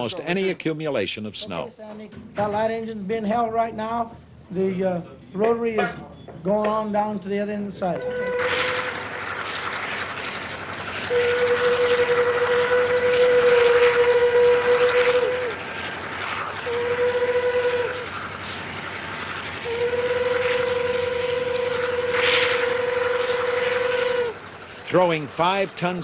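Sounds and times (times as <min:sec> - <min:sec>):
train horn blasts: 0:08.0 - 0:09.0, 0:11.1 - 0:15.6, 0:16.6 - 0:18.1, 0:19.6 - 0:24.4
snowplow rushing noise: 0:08.2 - 0:26.0.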